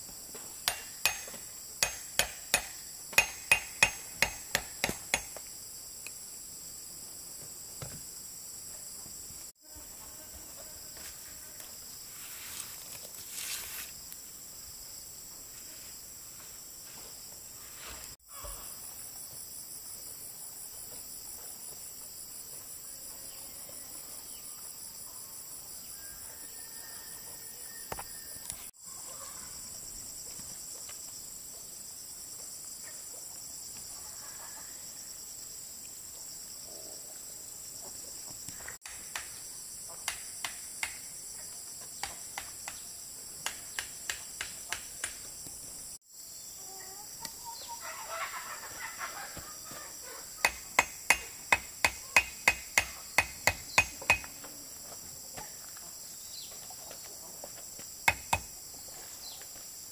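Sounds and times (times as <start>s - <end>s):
crickets chirping: 0.0s - 59.9s
hammer strikes: 0.6s - 5.5s, 50.4s - 54.4s, 58.1s - 58.5s.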